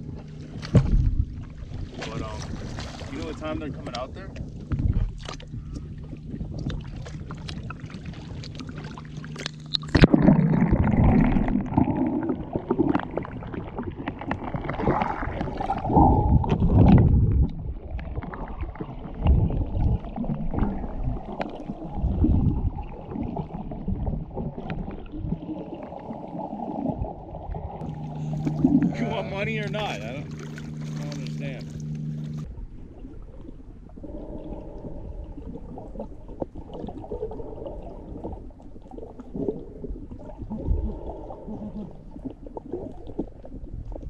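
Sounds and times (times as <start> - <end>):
underwater rumbling and bubbling: 0.0 - 44.0
water splashing: 0.0 - 44.0.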